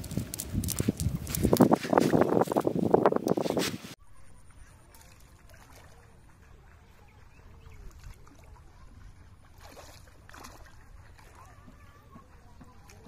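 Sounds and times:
swish of water and netting: 4.6 - 12.2
water sloshing: 4.6 - 13.0.

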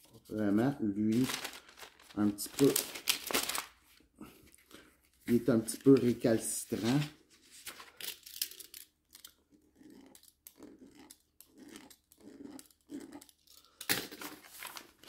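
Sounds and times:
paper rustling: 1.1 - 8.7, 14.1 - 15.0.

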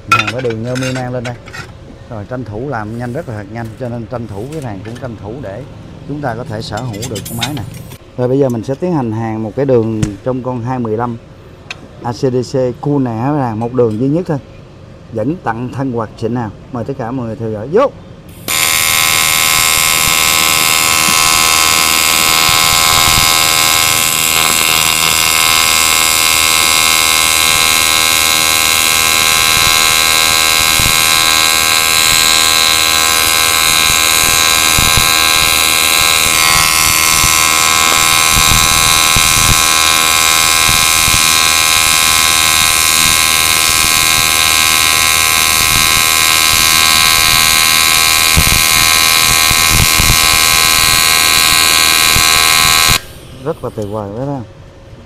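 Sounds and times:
welder arc buzzing: 0.0 - 1.1, 18.3 - 54.0.

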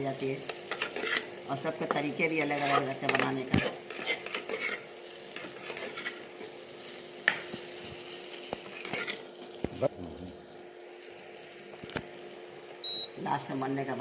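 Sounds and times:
light sizzle: 0.0 - 14.0
metal spatula scraping pan: 0.6 - 1.3, 2.4 - 6.3, 8.7 - 9.3.

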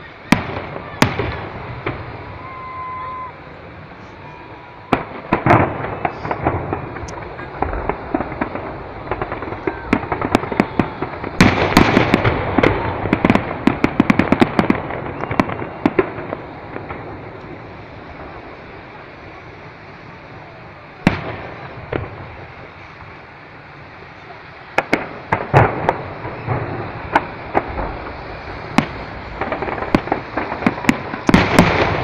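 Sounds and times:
fireworks crackling and popping: 0.0 - 32.0
loud firework bang: 0.3 - 18.6, 21.0 - 23.1, 24.8 - 32.0.

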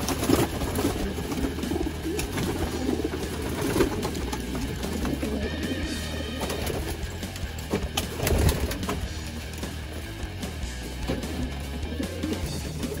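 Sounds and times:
wing flutters: 0.0 - 10.0
pigeons cooing: 0.0 - 13.0.

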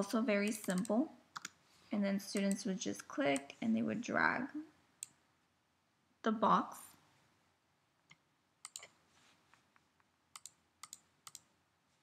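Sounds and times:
computer mouse clicks: 0.5 - 1.6, 2.3 - 3.6, 8.1 - 9.0, 10.3 - 11.5.

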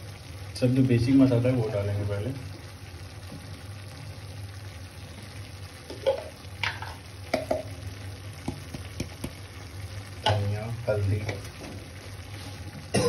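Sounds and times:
onions sizzling: 0.0 - 13.0.

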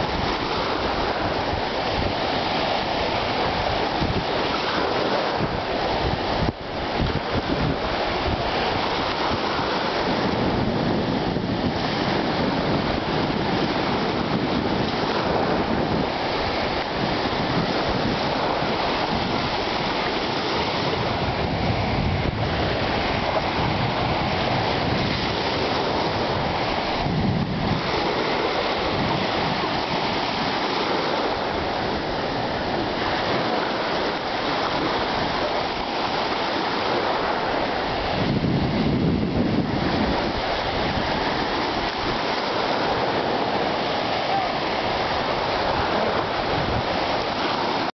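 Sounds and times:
small waves breaking: 0.0 - 47.9
wind on microphone: 0.0 - 47.9.

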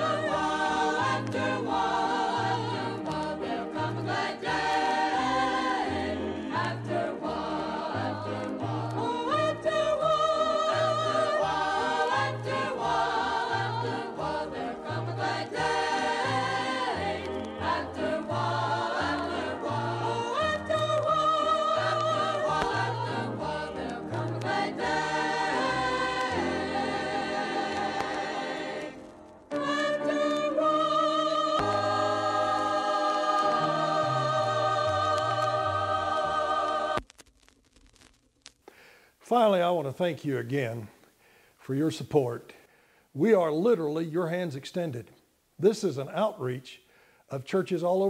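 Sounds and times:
choir singing with instrumental backing: 0.0 - 37.0.

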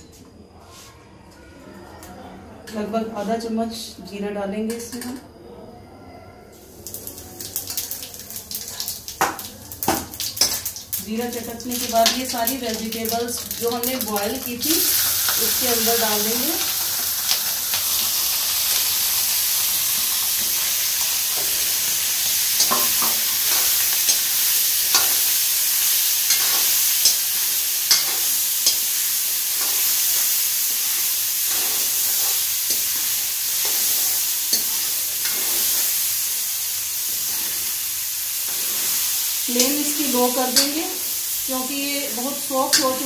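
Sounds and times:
vegetables sizzling in hot oil: 6.7 - 43.0
spoon knocking and scraping pan: 19.9 - 35.9.

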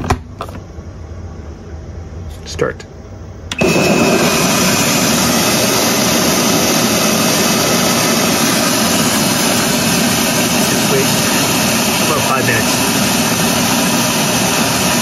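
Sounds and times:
rice milling machine whirring: 3.5 - 15.0.

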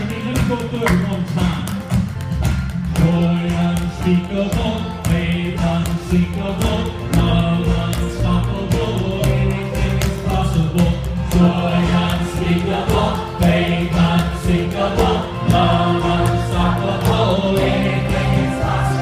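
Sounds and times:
band playing: 0.0 - 19.0
bucket and barrel drums: 0.0 - 19.0
choir singing gospel: 6.4 - 19.0.

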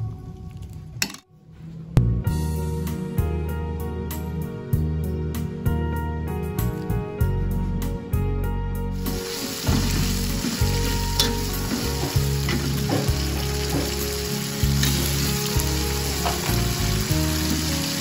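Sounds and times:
soft background music: 0.0 - 18.0
sauce sizzling in a wok: 9.0 - 18.0.

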